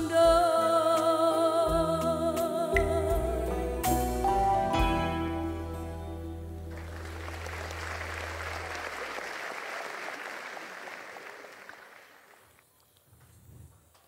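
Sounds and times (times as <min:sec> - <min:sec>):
low note of backing music: 0:01.6 - 0:08.9
audience applauding: 0:06.6 - 0:12.6.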